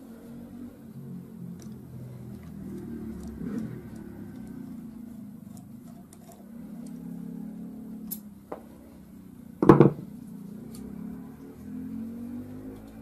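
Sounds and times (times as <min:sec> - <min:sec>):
part knocking on a table: 0:09.6 - 0:10.1.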